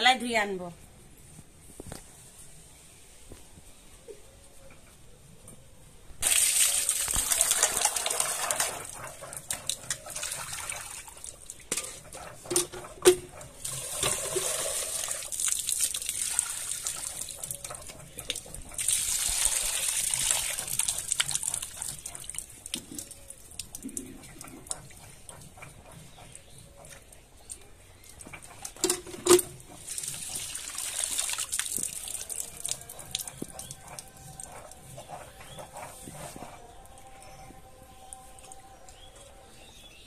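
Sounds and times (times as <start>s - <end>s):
water gushing and splashing: 6.2s - 24.9s, 28.8s - 33.4s
steel vessels knocking: 11.6s - 15.1s, 28.4s - 30.7s.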